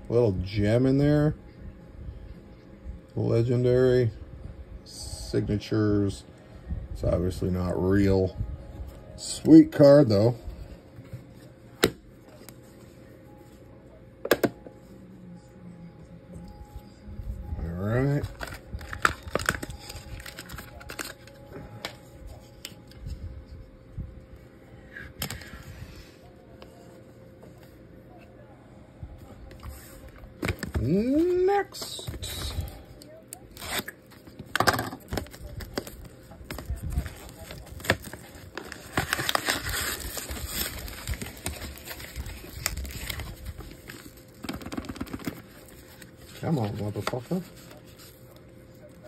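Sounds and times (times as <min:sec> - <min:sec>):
faint steady hum: 0:00.0 - 0:49.0
plastic wrap crinkling and tearing: 0:17.7 - 0:23.1, 0:29.8 - 0:49.0.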